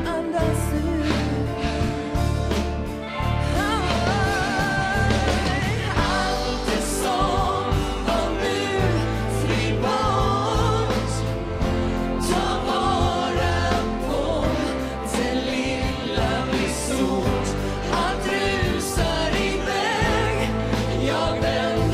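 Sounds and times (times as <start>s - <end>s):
woman singing: 0.0s - 2.2s, 3.4s - 11.3s
drums: 0.0s - 21.9s
electric guitar: 0.0s - 21.9s.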